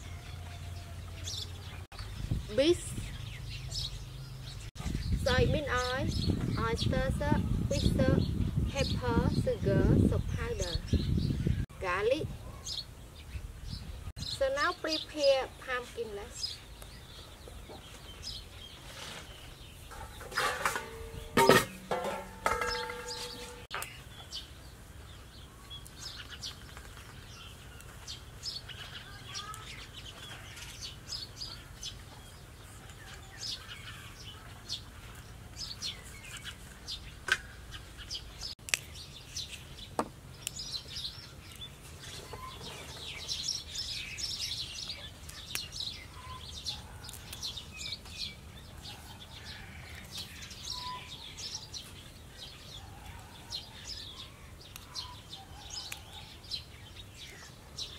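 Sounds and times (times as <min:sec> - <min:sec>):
small birds chirping: 0:00.0 - 0:57.9
vine stems snapping: 0:38.6 - 0:39.0, 0:47.0 - 0:47.4.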